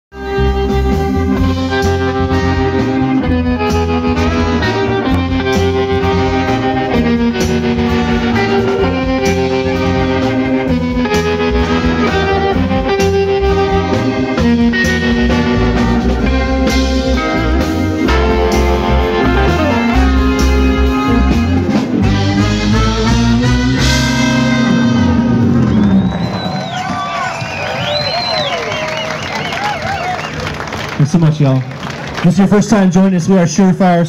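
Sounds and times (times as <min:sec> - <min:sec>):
saxophone and trombone melody: 0:00.1 - 0:27.1
band keeping steady beat: 0:00.2 - 0:30.9.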